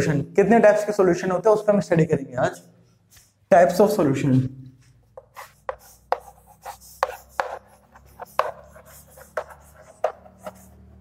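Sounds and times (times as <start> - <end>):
chalk tapping and scraping on chalkboard: 3.0 - 3.4, 4.8 - 11.0.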